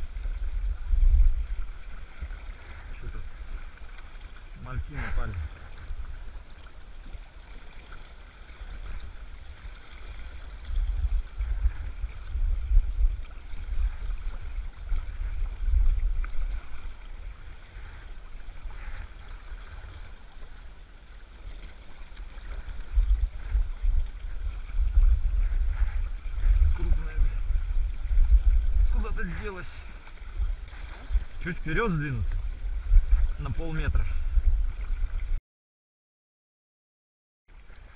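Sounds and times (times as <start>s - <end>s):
river water rushing: 13.2s - 35.2s
low rumble: 22.8s - 35.4s.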